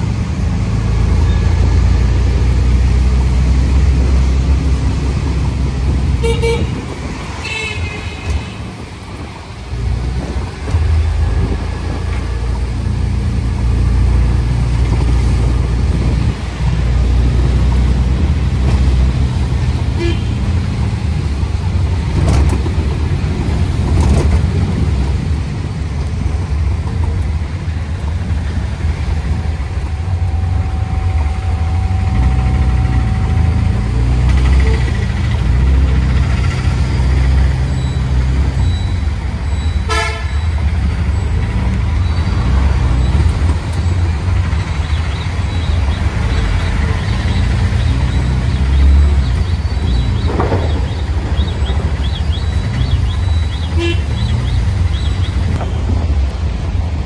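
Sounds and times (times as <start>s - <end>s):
auto-rickshaw engine running: 0.0s - 57.0s
vehicle horns tooting: 6.2s - 8.8s, 19.9s - 20.5s, 31.6s - 35.2s, 39.6s - 40.6s, 52.9s - 54.6s.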